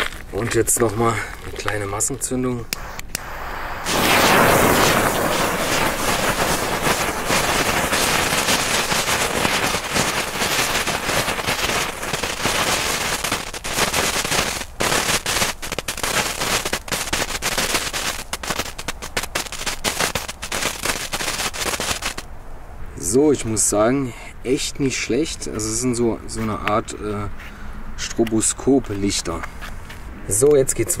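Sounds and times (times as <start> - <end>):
fireworks crackling and popping: 0.0 - 22.3.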